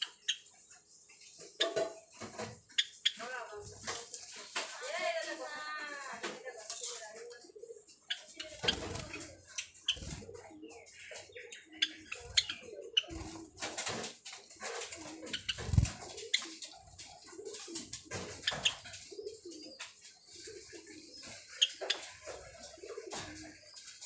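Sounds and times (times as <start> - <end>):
sparrows chirping and warbling: 0.0 - 24.0
wing flutters: 8.3 - 10.5, 12.0 - 20.9.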